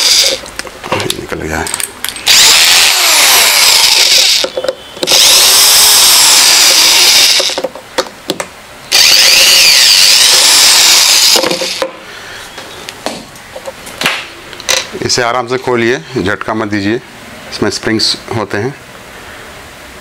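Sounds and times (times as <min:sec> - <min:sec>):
cordless drill running: 0:00.0 - 0:00.4, 0:02.3 - 0:07.6, 0:08.9 - 0:11.9.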